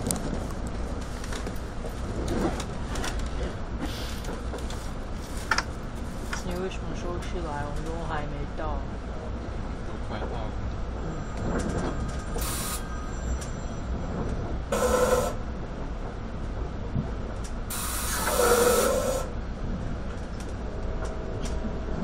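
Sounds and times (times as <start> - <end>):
train rumble: 0.0 - 22.0
rushes of hiss: 17.7 - 19.3.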